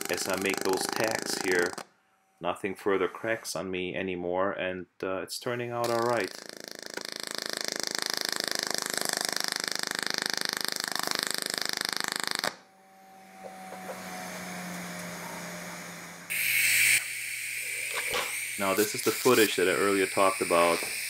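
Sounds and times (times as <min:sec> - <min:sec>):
welding arc buzzing: 0:00.0 - 0:01.8, 0:05.8 - 0:21.0
low hum: 0:12.5 - 0:18.3
loud hiss: 0:16.2 - 0:21.0.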